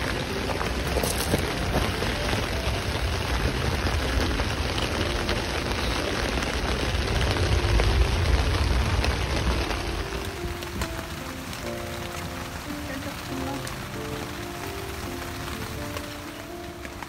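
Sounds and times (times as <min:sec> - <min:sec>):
rain falling on a tarp: 0:00.0 - 0:17.0.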